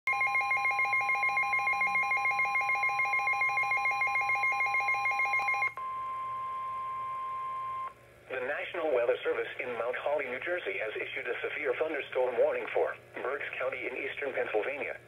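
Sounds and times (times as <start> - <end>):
weather radio pulsing alert alarm: 0.1 - 5.8
steady alarm tone: 0.1 - 8.0.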